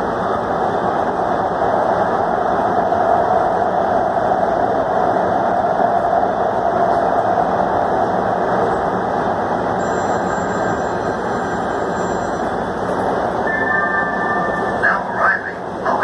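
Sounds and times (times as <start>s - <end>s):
subway train rumbling in tunnel: 0.0s - 16.0s
faint high whine: 9.8s - 15.6s.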